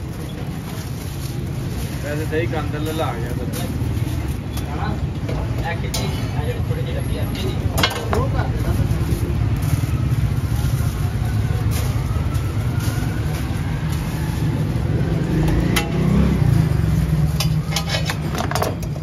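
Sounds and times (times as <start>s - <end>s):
plastic bags crinkling: 0.0s - 5.1s, 7.6s - 15.3s
street traffic rumble: 0.0s - 19.0s.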